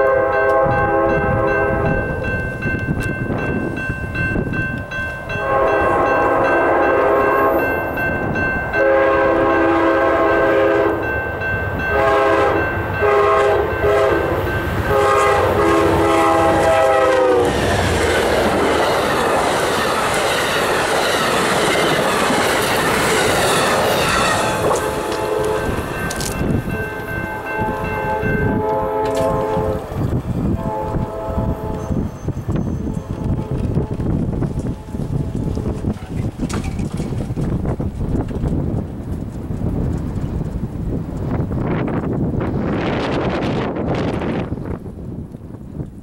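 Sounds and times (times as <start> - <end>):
locomotive horn blasts: 0.0 - 2.2, 5.3 - 7.7, 8.7 - 11.1, 11.8 - 17.6, 23.6 - 29.9, 30.5 - 32.0, 32.8 - 35.8
train wheels clattering past: 11.9 - 30.2.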